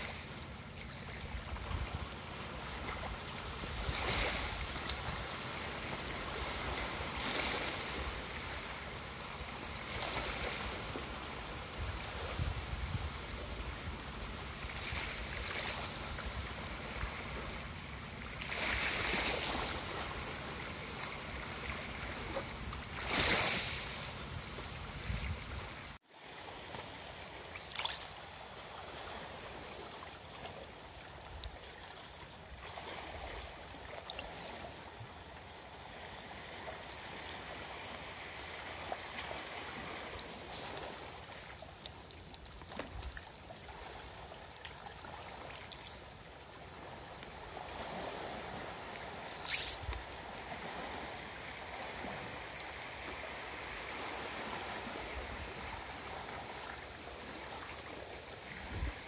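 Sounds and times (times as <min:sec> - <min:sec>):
small waves breaking on shore: 0:00.0 - 0:59.0
water lapping among roots: 0:00.0 - 0:59.0.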